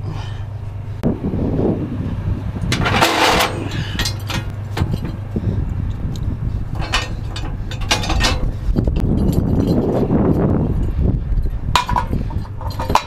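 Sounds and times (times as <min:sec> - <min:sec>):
steady low hum: 0:00.0 - 0:13.0
strap scraping rush: 0:01.0 - 0:13.0
ratchet metal clicks and clanks: 0:05.9 - 0:10.4, 0:11.4 - 0:13.0.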